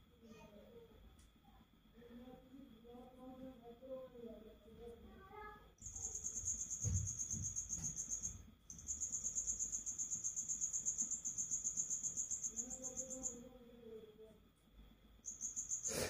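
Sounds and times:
cricket chirping: 0:05.8 - 0:14.0, 0:14.8 - 0:16.0.

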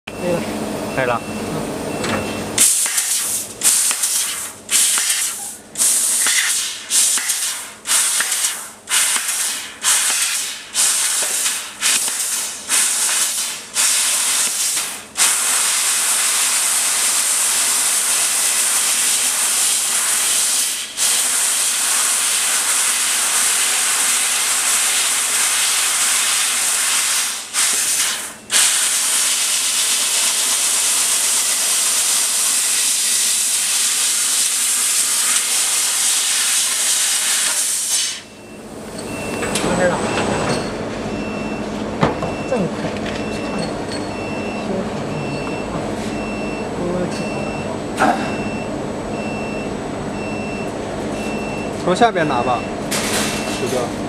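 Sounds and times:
laser cutter gas jet hissing: 0:02.6 - 0:38.4.

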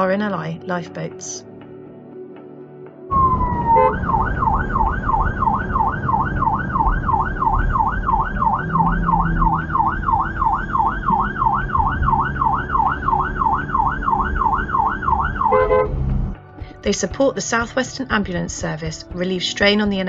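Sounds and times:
siren yelping: 0:03.1 - 0:16.3
road and engine noise: 0:03.1 - 0:16.4.

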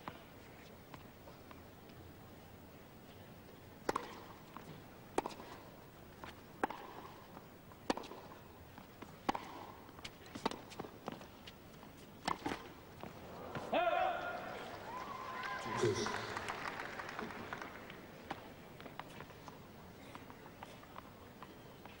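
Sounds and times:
racket striking tennis ball: 0:03.8 - 0:04.4, 0:06.2 - 0:08.4, 0:09.2 - 0:11.2, 0:12.2 - 0:14.4
tennis ball bouncing: 0:03.8 - 0:05.6, 0:06.2 - 0:14.6.

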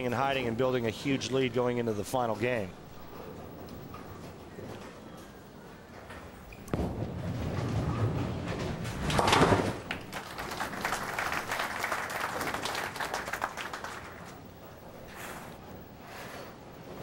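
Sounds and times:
bowling ball rolling: 0:05.8 - 0:17.0
bowling pins crashing: 0:06.7 - 0:11.6
audience applause: 0:09.8 - 0:14.4.

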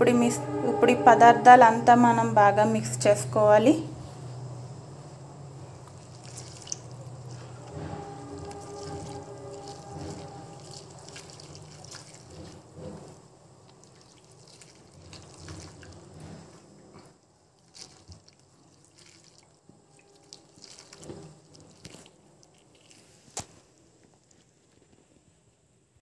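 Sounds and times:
hand sloshing water in bowl: 0:05.8 - 0:07.4, 0:08.4 - 0:12.6, 0:13.8 - 0:16.2, 0:17.6 - 0:19.6, 0:20.2 - 0:22.1.

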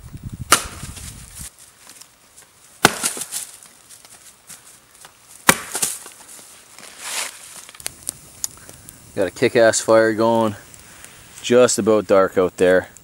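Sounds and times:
axe striking wood: 0:00.5 - 0:00.9, 0:02.8 - 0:03.4, 0:05.4 - 0:06.0
wood cracking: 0:02.8 - 0:04.2, 0:05.0 - 0:09.0.

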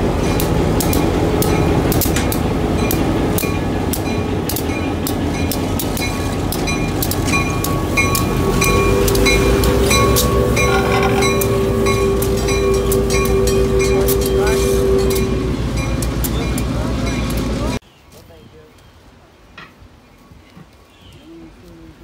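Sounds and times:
diesel locomotive engine rumble: 0:00.0 - 0:17.8
bell ringing: 0:00.2 - 0:17.8.

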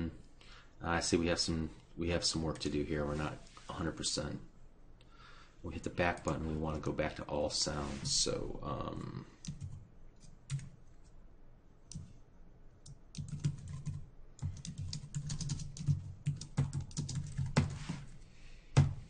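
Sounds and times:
keyboard typing: 0:09.4 - 0:10.8, 0:11.9 - 0:12.2, 0:12.8 - 0:18.1.

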